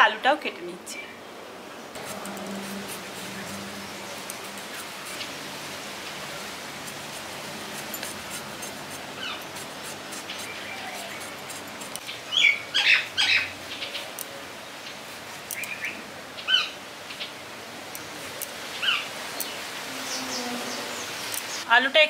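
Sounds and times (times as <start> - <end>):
background hiss: 0.0 - 22.0
birds chirping: 7.8 - 18.1, 18.7 - 21.7.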